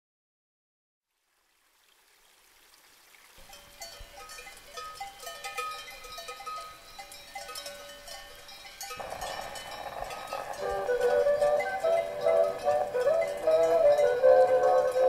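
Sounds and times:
cattle bells clanking: 0:03.4 - 0:15.0
folk music: 0:09.0 - 0:15.0.

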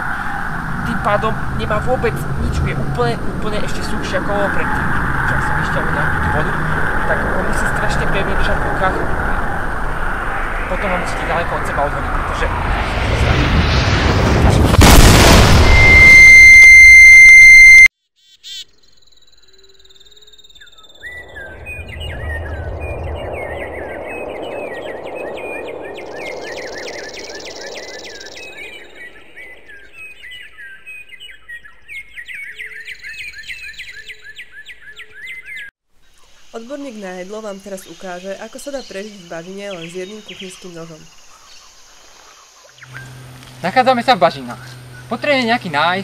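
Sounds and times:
birds chirping: 0:00.0 - 0:13.4, 0:18.4 - 0:46.0
explosion: 0:08.9 - 0:17.3, 0:21.2 - 0:27.0
high-pitched ringing tone: 0:15.6 - 0:17.9.

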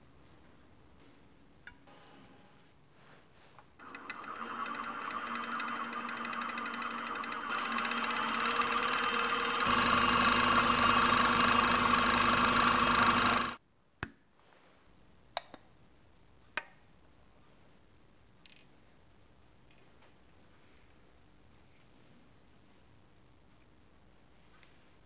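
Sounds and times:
wood lathe motor humming: 0:03.8 - 0:13.6.

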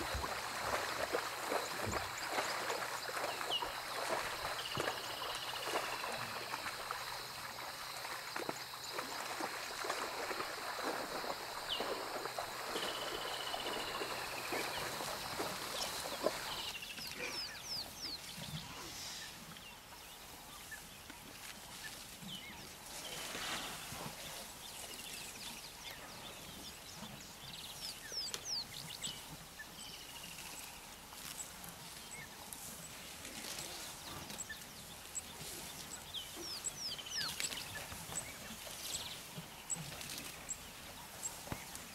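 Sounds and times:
elephant splashing through water: 0:00.0 - 0:16.7.

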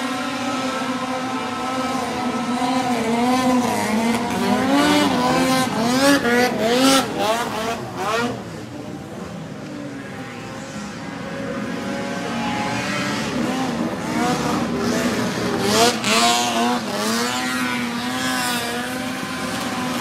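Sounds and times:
snowmobile engines at high revs: 0:00.0 - 0:20.0.

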